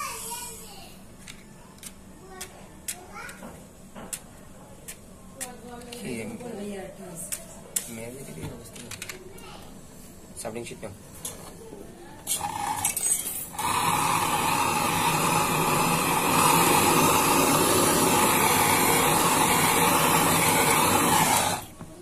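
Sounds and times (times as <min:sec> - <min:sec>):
torch flame hissing: 0:13.5 - 0:21.8.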